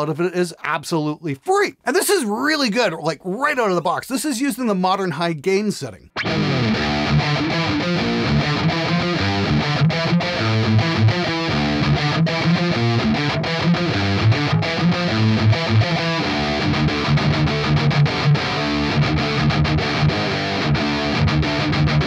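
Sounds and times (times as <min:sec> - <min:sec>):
distorted electric guitar riff: 0:06.1 - 0:22.0.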